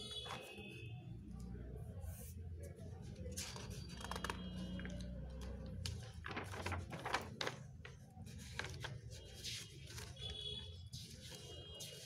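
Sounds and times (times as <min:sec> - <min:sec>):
paper pages rustling: 0:03.2 - 0:12.0.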